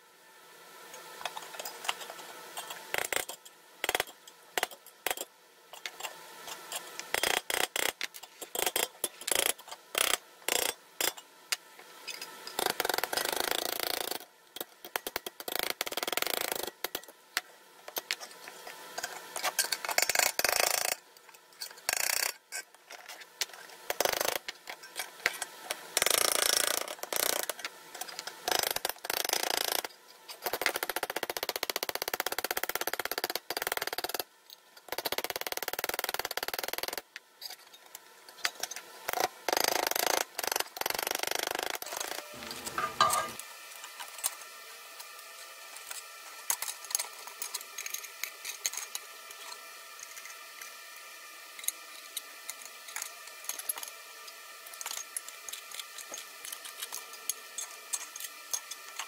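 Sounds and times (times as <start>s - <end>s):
hammer tapping metal on anvil: 42.4s - 43.4s.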